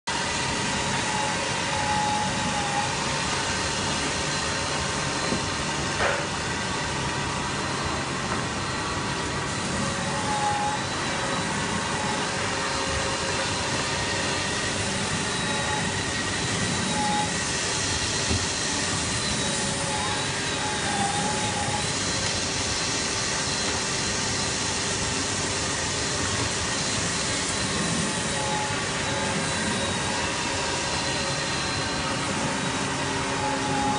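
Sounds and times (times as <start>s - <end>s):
belt sander grinding wood: 9.5s - 24.1s, 24.8s - 33.9s.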